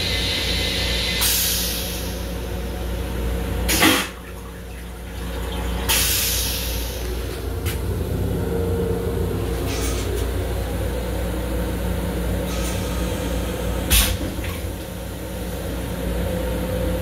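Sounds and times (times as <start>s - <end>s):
toilet flush rush: 0.0s - 8.5s
railcar low rumble: 0.0s - 17.0s
toilet rinse spray hissing: 3.7s - 7.5s.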